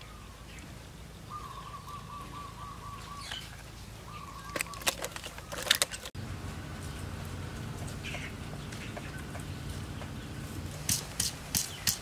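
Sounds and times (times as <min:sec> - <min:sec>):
clicks and crackles in basket: 0:04.4 - 0:06.2.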